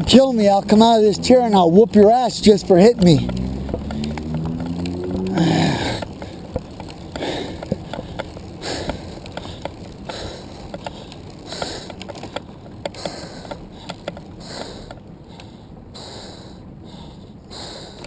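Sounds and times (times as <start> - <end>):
person breathing hard: 5.3 - 6.4, 7.1 - 18.0.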